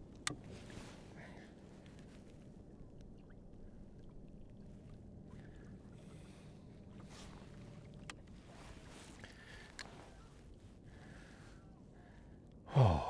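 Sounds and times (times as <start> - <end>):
water lapping against kayak: 0.0 - 12.6
faint ticks: 9.2 - 10.0.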